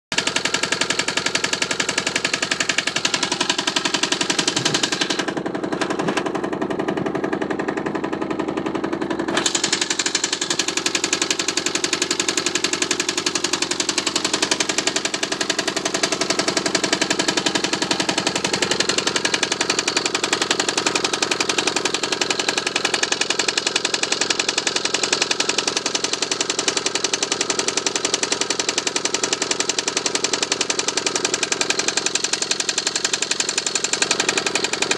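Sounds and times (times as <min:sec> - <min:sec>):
diesel engine knocking steadily: 0:00.1 - 0:34.9.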